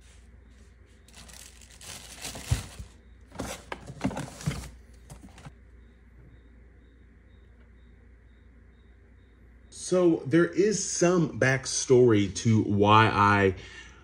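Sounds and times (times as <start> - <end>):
packaging crinkling and rustling: 1.0 - 5.5.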